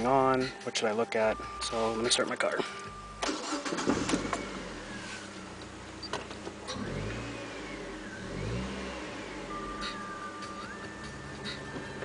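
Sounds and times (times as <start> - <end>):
car engine revving: 3.2 - 12.0.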